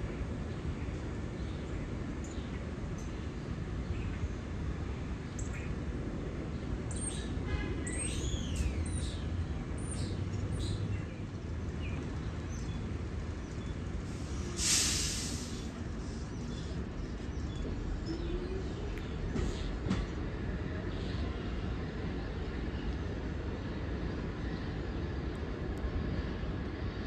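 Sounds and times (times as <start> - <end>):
low rumble of street noise: 0.0 - 27.0
sharp hiss: 14.1 - 16.6.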